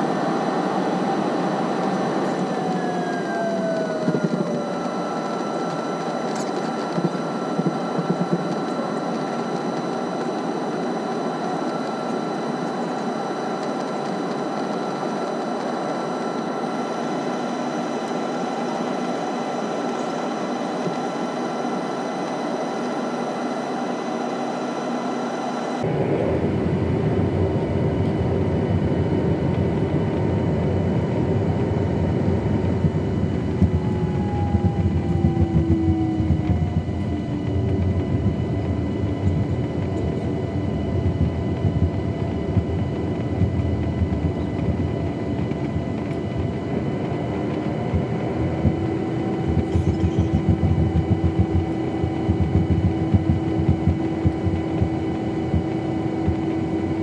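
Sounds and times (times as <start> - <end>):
airplane cabin engine hum: 0.0 - 57.0.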